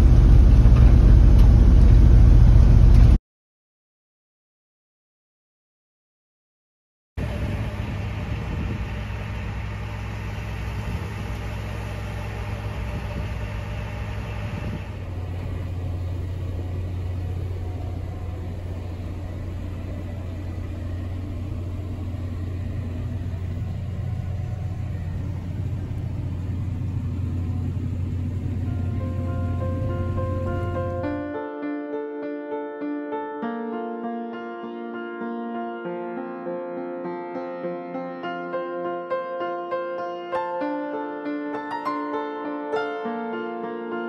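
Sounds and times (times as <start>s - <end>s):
farm machinery running: 0.0s - 3.2s, 7.2s - 31.2s
tractor engine drone: 0.0s - 3.2s, 7.2s - 31.3s.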